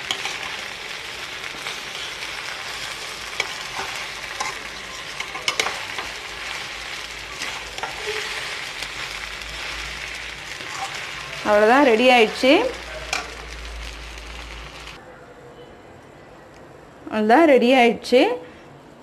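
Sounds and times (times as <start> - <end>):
metal spatula scraping pan: 0.0 - 0.7, 1.5 - 11.5
food sizzling in a pan: 0.0 - 15.0.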